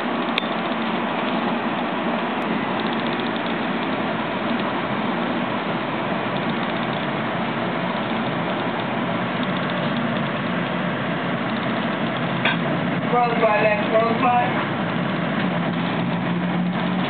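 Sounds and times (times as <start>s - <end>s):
train wheels rumbling on rail: 6.0s - 17.0s.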